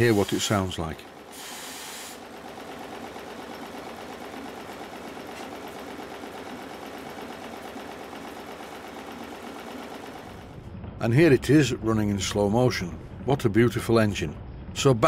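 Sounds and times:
model steam engine running: 0:00.0 - 0:10.4.

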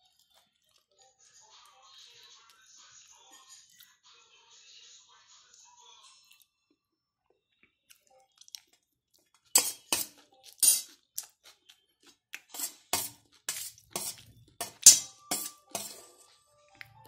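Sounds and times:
spoon scraping a steel plate: 0:09.5 - 0:11.0, 0:12.5 - 0:16.4.

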